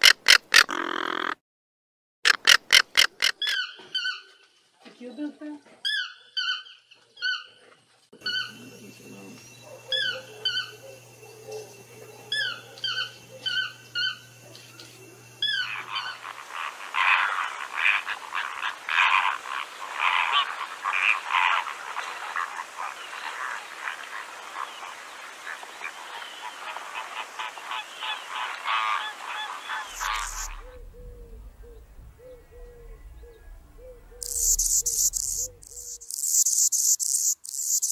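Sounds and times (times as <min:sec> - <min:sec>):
toucan yelping calls: 0:02.3 - 0:04.2, 0:08.2 - 0:22.5, 0:26.4 - 0:37.9
ducks quacking and honking: 0:25.8 - 0:36.0.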